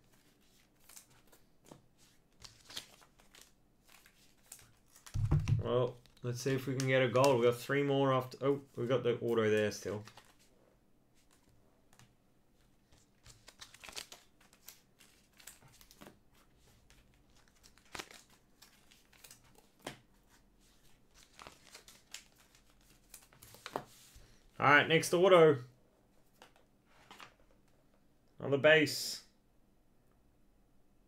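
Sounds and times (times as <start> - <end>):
trading cards flipped by hand: 0.1 - 7.4, 10.0 - 10.5, 12.8 - 24.2, 26.3 - 27.4.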